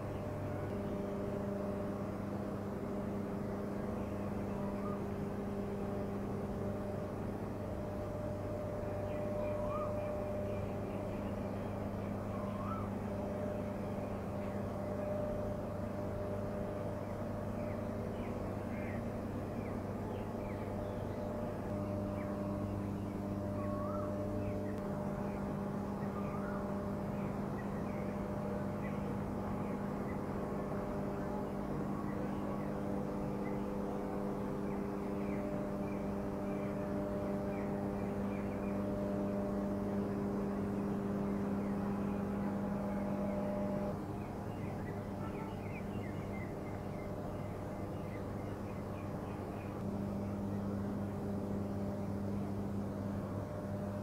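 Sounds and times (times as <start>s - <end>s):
electric machinery humming: 0.0s - 54.0s.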